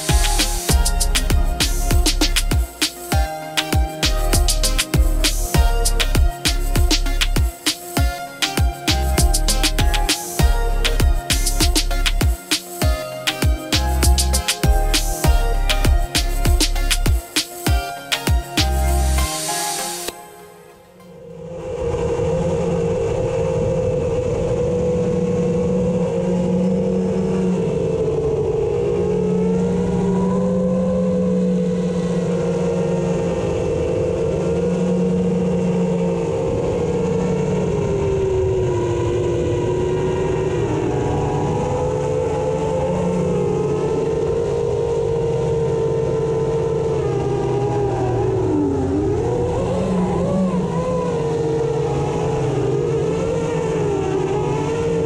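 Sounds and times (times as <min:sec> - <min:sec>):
wind rush: 0:21.3 - 0:34.5.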